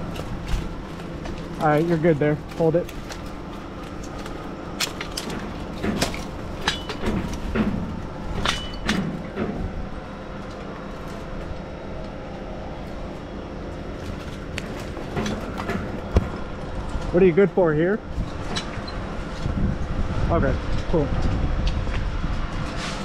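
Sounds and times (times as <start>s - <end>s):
crane engine running: 0.0s - 23.0s.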